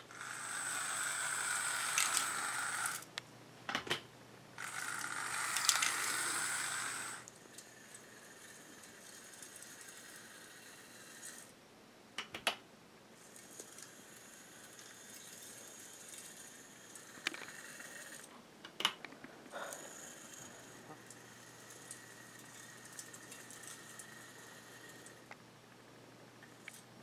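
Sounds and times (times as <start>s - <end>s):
model locomotive motor whine: 0.0s - 3.1s, 4.6s - 11.5s, 13.2s - 18.3s, 19.5s - 25.4s.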